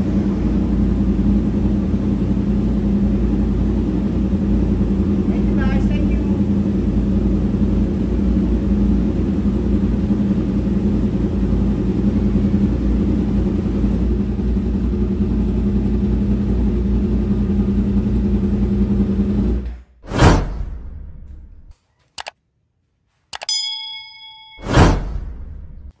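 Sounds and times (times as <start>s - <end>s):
motorcycle engines idling: 0.0s - 19.6s.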